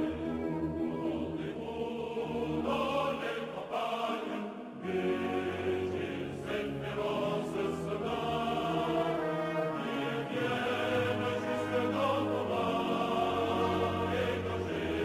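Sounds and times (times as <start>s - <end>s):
choir singing sustained chords: 0.0s - 15.0s.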